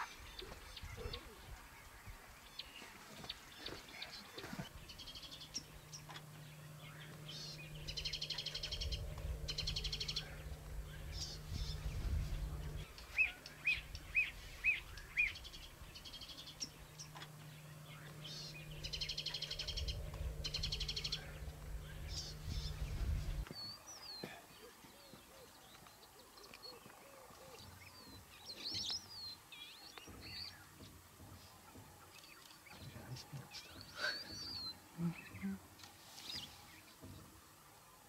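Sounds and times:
steady low hum: 0:00.0 - 0:35.8
birds singing and trilling: 0:00.0 - 0:38.0.

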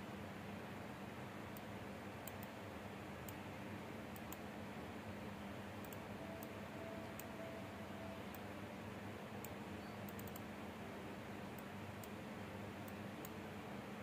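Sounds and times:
faint steady tone: 0:00.0 - 0:14.0
room tone hiss: 0:00.0 - 0:14.0
faint light clicks: 0:01.5 - 0:02.6, 0:04.1 - 0:04.5, 0:05.8 - 0:06.5.

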